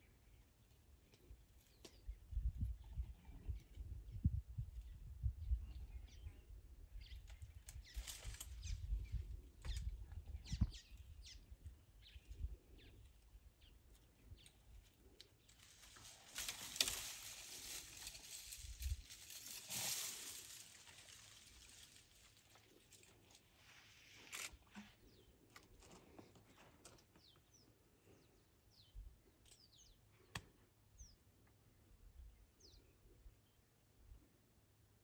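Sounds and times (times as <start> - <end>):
elephant pulling leaves and twigs: 15.0 - 25.2.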